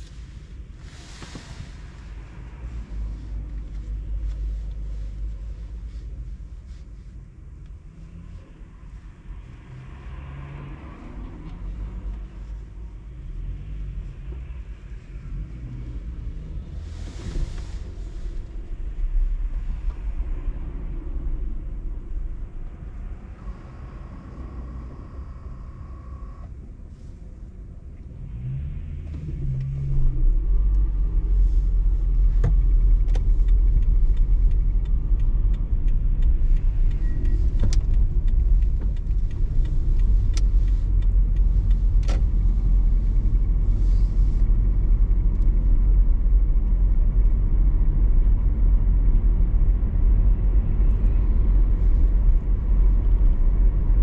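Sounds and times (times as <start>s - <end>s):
road and wind rumble: 0.0s - 54.0s
car engine pulling away: 9.2s - 27.1s.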